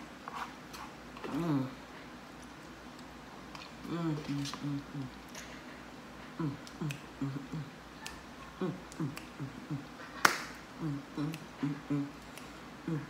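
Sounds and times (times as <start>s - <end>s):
woman humming: 1.2s - 1.9s, 3.8s - 5.2s, 6.4s - 10.0s, 10.8s - 13.0s
finger snapping: 10.2s - 10.6s.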